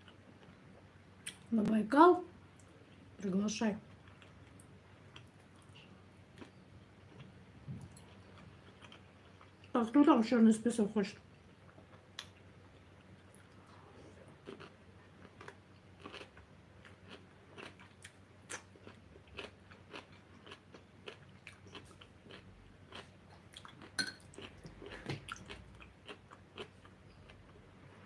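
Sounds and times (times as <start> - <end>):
chewing and biting food: 6.4 - 9.7, 14.2 - 27.6.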